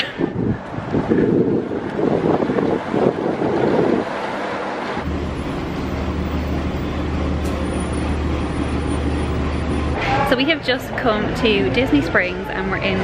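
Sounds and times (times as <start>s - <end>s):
wind buffeting microphone: 0.0s - 4.2s
bus engine idling: 2.8s - 12.3s.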